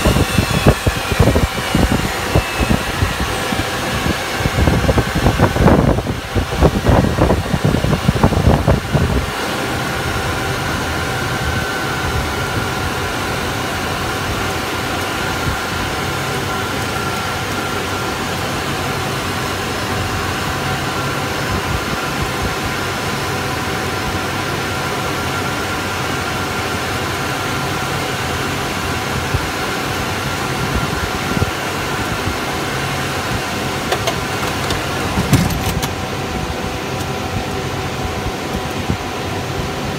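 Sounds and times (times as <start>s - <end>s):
high whining tones: 0.0s - 21.9s
jet engine rush: 0.0s - 39.9s.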